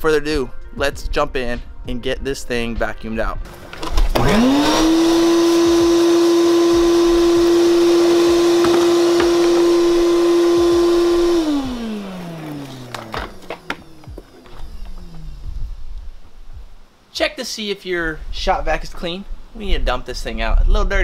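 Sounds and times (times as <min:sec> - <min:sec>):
shop vac motor whining: 0:03.5 - 0:16.8.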